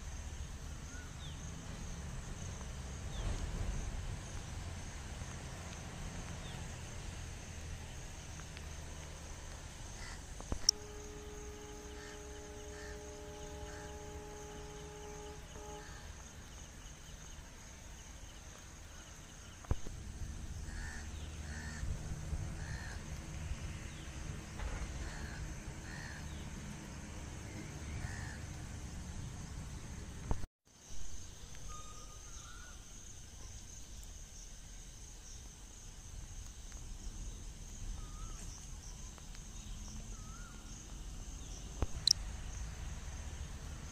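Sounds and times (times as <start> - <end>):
low outdoor rumble: 0.0 - 30.5
crows cawing: 10.0 - 10.3, 20.7 - 21.9, 22.6 - 23.0, 25.0 - 26.3, 28.0 - 28.4
steady multi-pitch tone: 10.6 - 16.2.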